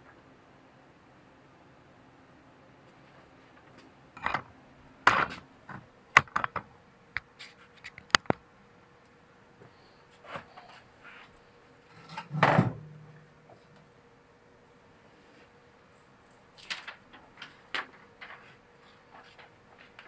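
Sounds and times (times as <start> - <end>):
sharp clicks and knocks: 5.1 - 8.4
person rustling handling things: 16.3 - 20.0.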